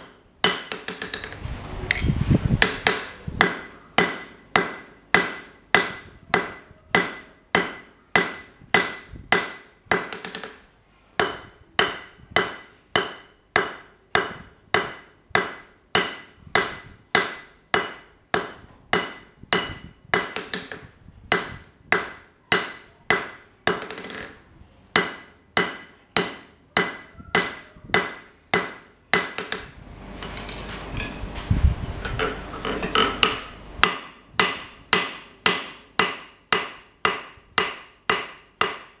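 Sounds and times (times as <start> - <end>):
tools clattering: 32.0 - 33.4.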